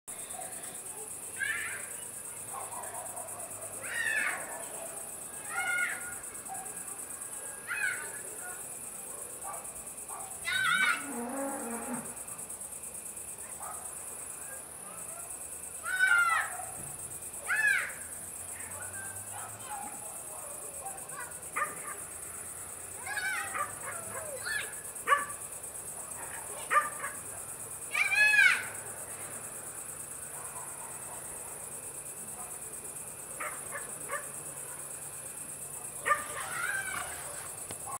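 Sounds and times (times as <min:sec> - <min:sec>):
crickets chirring: 0:00.1 - 0:38.0
dog barking: 0:02.5 - 0:03.8, 0:06.4 - 0:06.9, 0:09.1 - 0:10.4, 0:13.5 - 0:14.0, 0:18.7 - 0:22.0, 0:23.4 - 0:24.4, 0:25.1 - 0:25.4, 0:26.1 - 0:27.2, 0:30.3 - 0:31.6, 0:33.4 - 0:34.8, 0:35.9 - 0:36.5.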